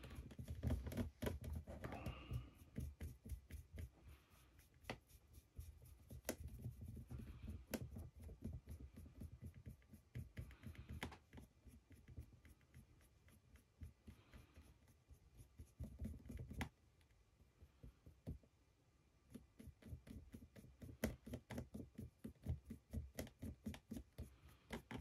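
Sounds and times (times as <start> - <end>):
small clicks and taps: 0.0 - 3.9, 6.1 - 14.4, 15.7 - 17.2, 19.3 - 25.0
brush rubbing on figure: 0.0 - 16.8, 19.3 - 25.0.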